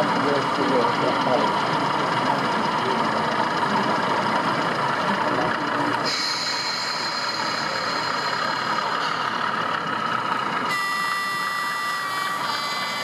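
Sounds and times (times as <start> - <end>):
crowd chatter: 0.0 - 11.6
recorded diesel engine idling: 0.0 - 13.0
higher steady tone: 5.0 - 13.0.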